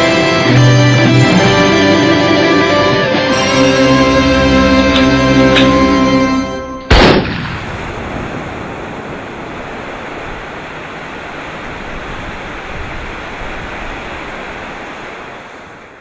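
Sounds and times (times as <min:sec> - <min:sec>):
steady rushing noise: 0:07.3 - 0:16.0.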